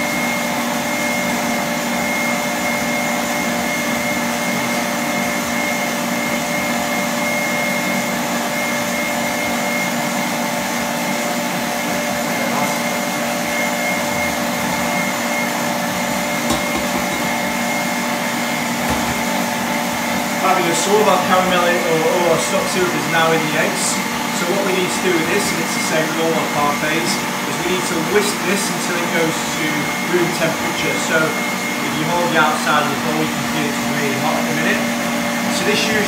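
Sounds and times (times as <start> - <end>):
stand mixer whisking: 0.0 - 36.0.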